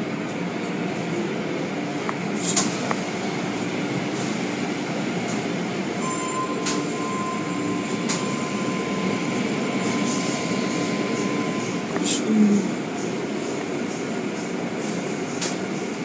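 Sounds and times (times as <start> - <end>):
thin steady whine: 5.9 - 16.0.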